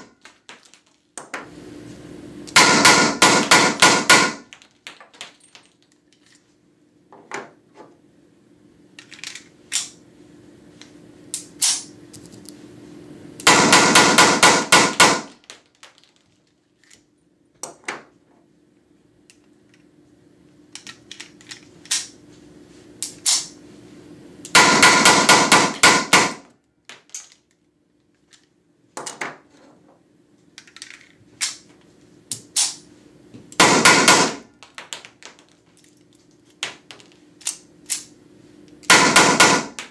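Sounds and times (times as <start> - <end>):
blank pistol rapid shots: 2.6 - 4.4, 13.4 - 15.4, 24.6 - 26.4, 33.6 - 34.4, 38.9 - 39.8.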